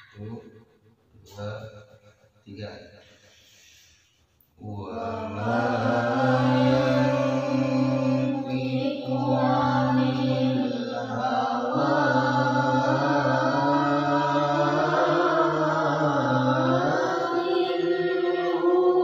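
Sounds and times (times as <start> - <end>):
melodic chanted recitation: 4.6 - 19.0.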